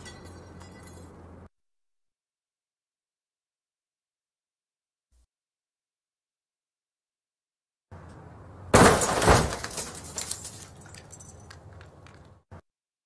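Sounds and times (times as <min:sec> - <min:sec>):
falling glass and debris clinking: 0:00.0 - 0:01.1, 0:08.8 - 0:11.6
car crash impact of crumpling metal: 0:08.7 - 0:10.8
glass shattering: 0:08.8 - 0:11.6.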